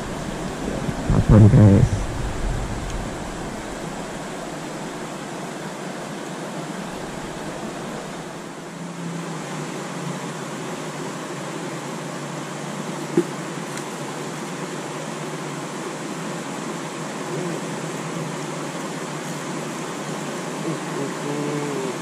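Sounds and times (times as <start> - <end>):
river rushing over rocks: 0.0 - 17.3.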